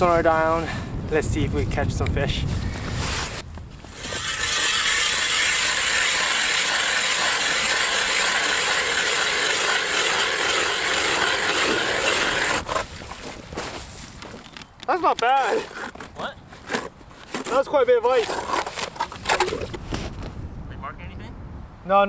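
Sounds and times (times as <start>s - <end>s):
ice auger grinding into ice: 3.8s - 13.2s, 15.4s - 19.7s.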